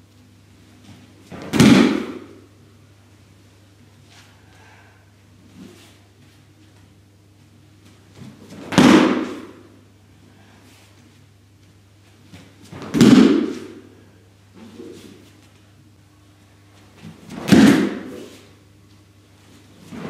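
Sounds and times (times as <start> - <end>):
heavy thuds on mat: 1.3 - 2.2, 17.3 - 18.1.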